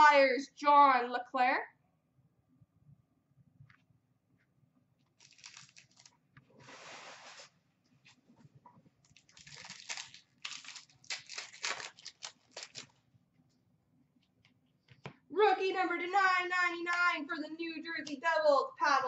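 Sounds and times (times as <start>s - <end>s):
foil wrappers crinkling and tearing: 5.2s - 6.2s, 9.0s - 13.0s.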